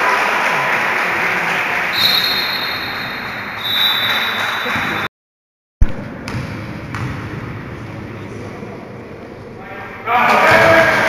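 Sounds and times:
sports hall crowd: 0.0s - 5.1s, 5.8s - 11.0s
high steady whistle tone: 1.9s - 5.1s.

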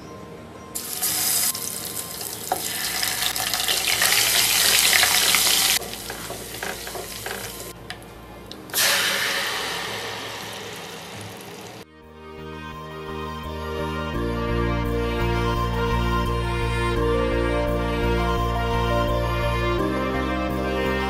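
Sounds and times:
faint background music: 0.0s - 10.7s
garlic paste sizzling in oil: 0.8s - 7.7s, 8.7s - 11.8s.

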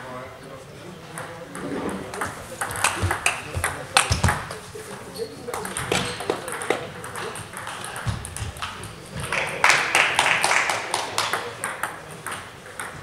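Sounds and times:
table tennis balls clicking: 1.2s - 9.6s, 11.2s - 13.0s.

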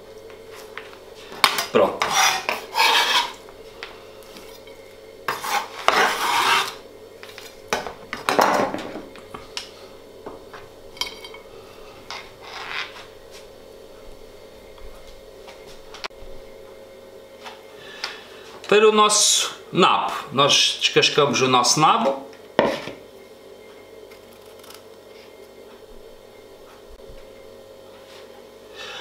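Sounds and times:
knife scraping on plastic cutting board: 2.0s - 3.4s, 5.3s - 7.5s.

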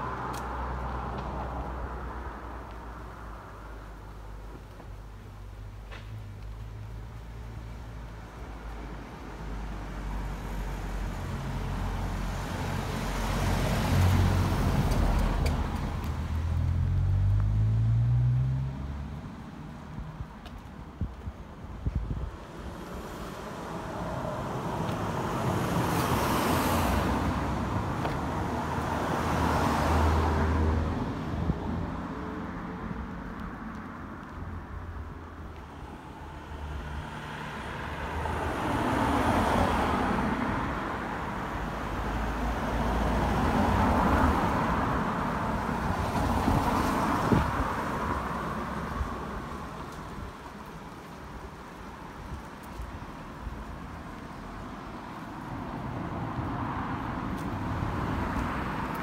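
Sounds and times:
cars passing on a road: 0.0s - 59.0s.

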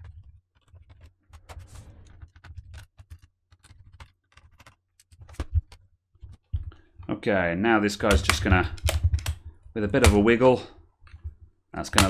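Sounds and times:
sharp clicks: 8.0s - 10.4s
plastic case being handled: 8.0s - 12.0s.

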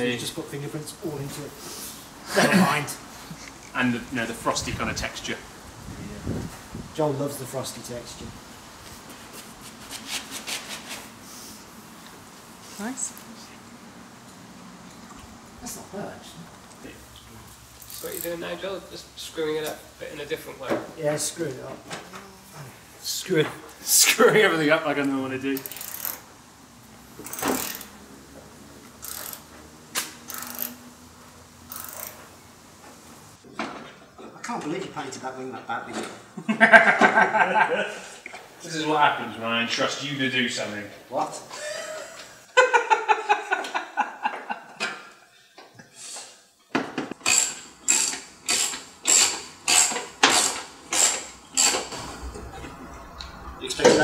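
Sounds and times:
people laughing: 2.3s - 3.5s, 36.4s - 38.2s, 41.5s - 45.0s
ratchet spanner clicking: 25.6s - 26.2s, 27.2s - 28.0s, 29.0s - 29.5s, 30.3s - 30.8s, 31.7s - 32.2s, 47.2s - 51.9s
socket ratchet clicking: 30.3s - 30.8s, 31.7s - 32.2s.

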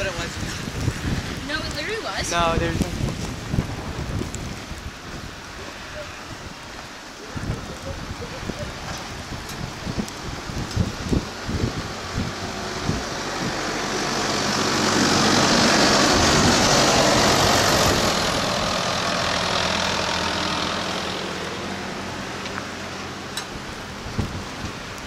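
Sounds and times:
plow blade pushing snow: 0.0s - 25.0s
snow plow engine running: 8.8s - 25.0s.

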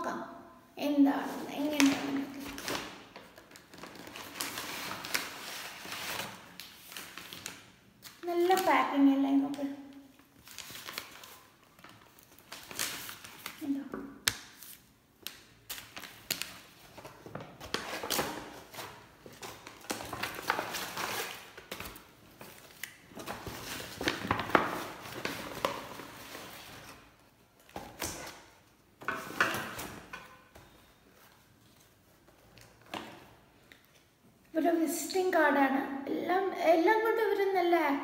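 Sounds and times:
paper bags rustling and crinkling: 1.2s - 8.7s, 10.2s - 13.8s, 14.4s - 28.4s.

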